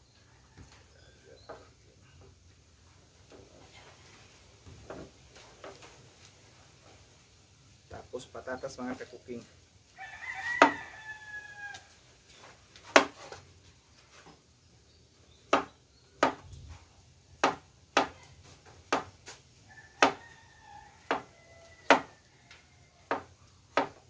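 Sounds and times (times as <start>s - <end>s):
rooster crowing: 9.9s - 12.1s, 19.6s - 23.4s.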